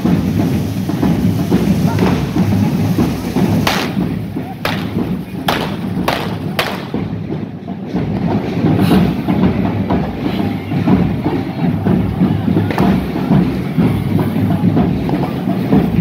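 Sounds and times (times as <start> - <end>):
firecracker bangs: 0.1 - 7.2.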